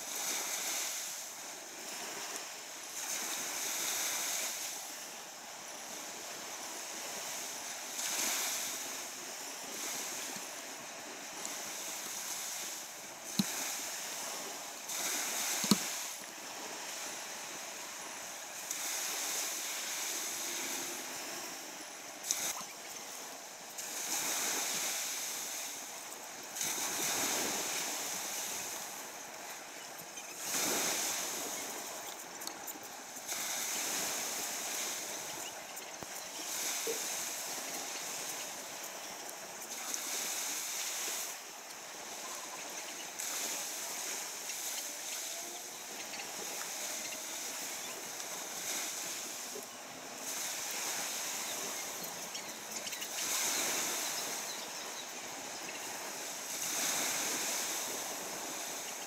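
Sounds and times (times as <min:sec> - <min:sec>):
sea waves washing in: 0:00.0 - 0:59.0.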